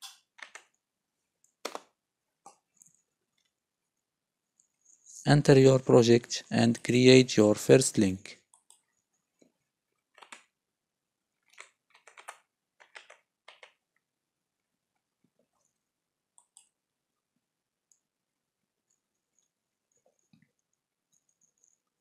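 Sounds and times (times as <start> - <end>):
keyboard keys typing: 0.0 - 0.7, 1.6 - 1.9, 10.1 - 10.5, 11.5 - 13.8.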